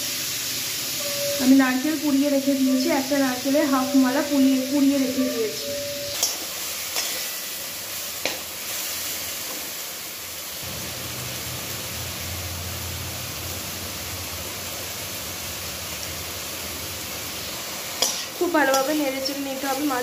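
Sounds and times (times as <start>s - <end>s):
vegetables sizzling in a pan: 0.0s - 20.0s
metal spatula scraping a pan: 5.7s - 9.0s, 18.0s - 19.0s.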